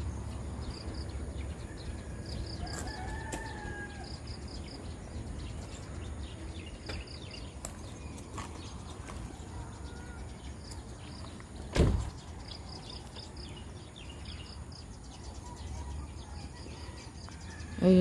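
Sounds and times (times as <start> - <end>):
rooster crowing: 2.0 - 4.3.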